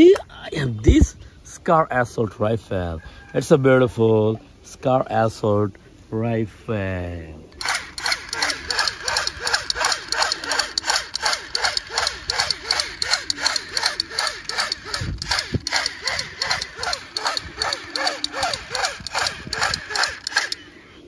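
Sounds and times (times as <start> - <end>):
toy gun machine-gun sound effect: 7.6 - 20.7.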